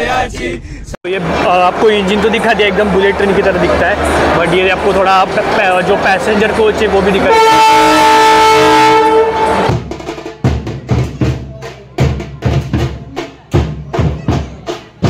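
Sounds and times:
drums beating: 0:01.1 - 0:15.0
train horn chord: 0:07.2 - 0:09.7.

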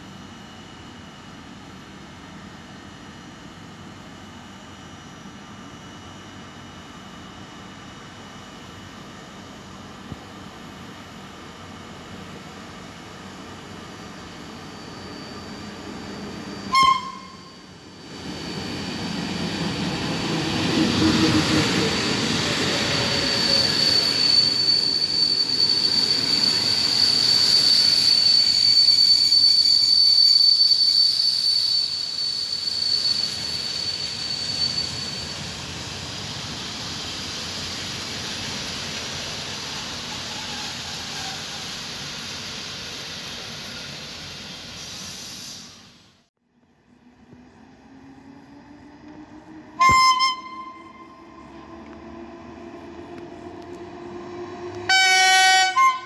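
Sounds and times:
train wheel and brake squeal: 0:11.8 - 0:46.2, 0:48.3 - 0:56.0
train rumble: 0:15.4 - 0:29.4, 0:47.1 - 0:56.0
short sharp whistle toot: 0:16.7 - 0:17.7, 0:23.0 - 0:35.2, 0:49.8 - 0:51.2.

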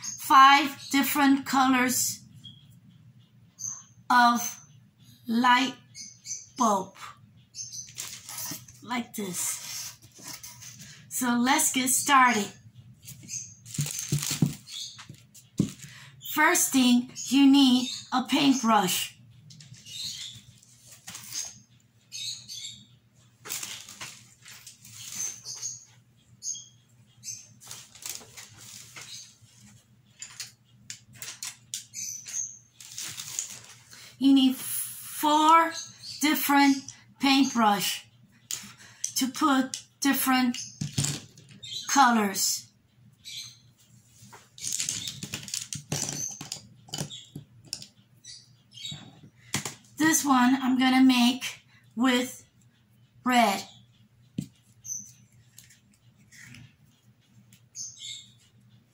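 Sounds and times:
high chirps or squeaks: 0:31.9 - 0:33.7.

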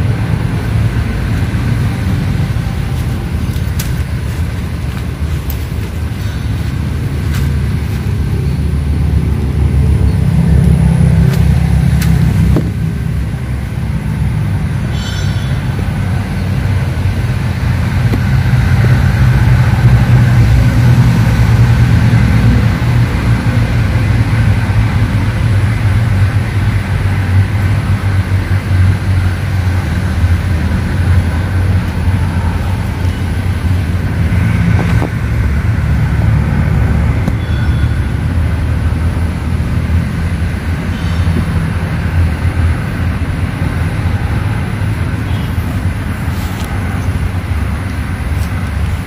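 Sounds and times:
low engine rumble: 0:00.0 - 0:49.0
faint high steady tone: 0:14.9 - 0:16.0.

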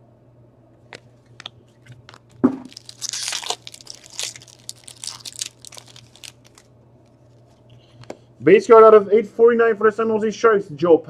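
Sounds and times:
wrapper crinkling and tearing: 0:01.3 - 0:07.4
thump: 0:02.4 - 0:02.7.

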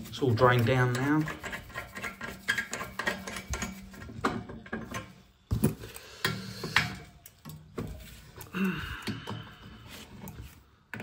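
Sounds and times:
metal knocks and clunks: 0:02.6 - 0:08.0.

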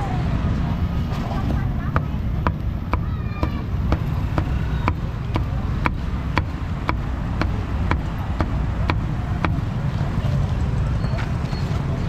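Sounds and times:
constant low rumble: 0:00.0 - 0:12.0
cleaver chopping on wooden board: 0:01.9 - 0:09.6.

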